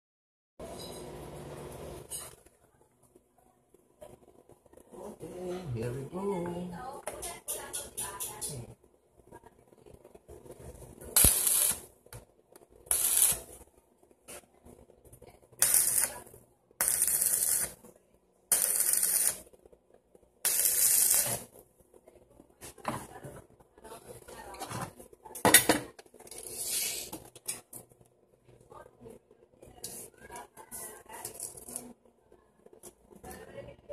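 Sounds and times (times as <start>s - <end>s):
welding hiss: 11.2s - 11.9s, 12.9s - 13.6s, 15.6s - 16.2s, 16.8s - 17.8s, 18.5s - 19.4s, 20.5s - 21.5s.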